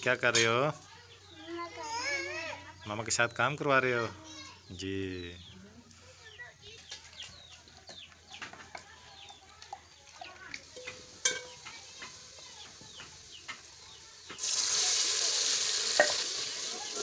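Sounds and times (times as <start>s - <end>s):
chickens peeping and clucking: 5.2s - 14.5s
paste sizzling in hot oil: 10.6s - 17.0s.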